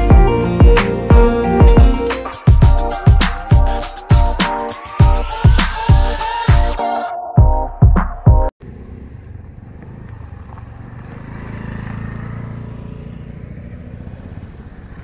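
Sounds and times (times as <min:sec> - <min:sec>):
motorcycles riding past on gravel: 0:08.6 - 0:15.0.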